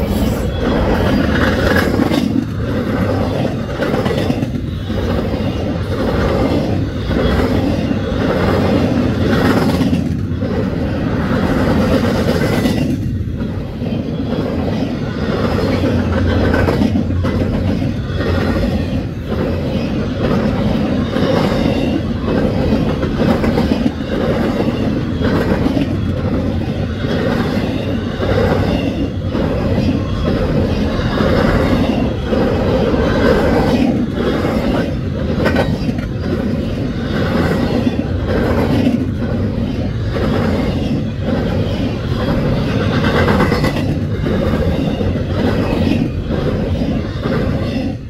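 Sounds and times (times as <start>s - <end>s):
steel train wheels rumbling on rail: 0.0s - 48.0s
train wheels clacking: 0.0s - 48.0s.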